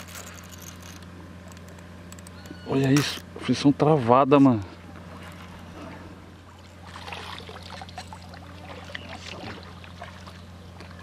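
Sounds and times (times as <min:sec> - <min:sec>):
steady low hum: 0:00.0 - 0:11.0
water splashing and trickling: 0:05.1 - 0:11.0.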